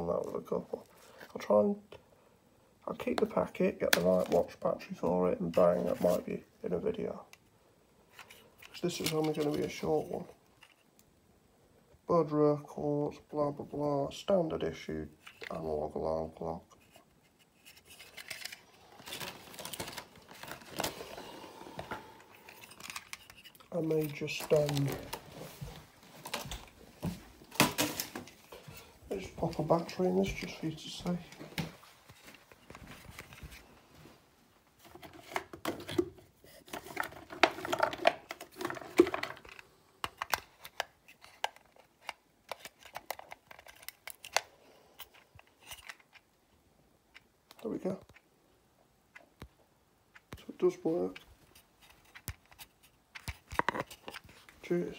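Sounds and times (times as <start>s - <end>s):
plastic packaging rustling: 8.1s - 10.9s, 16.8s - 34.2s, 34.8s - 46.3s
things rattling and knocking in cupboard: 34.8s - 39.5s.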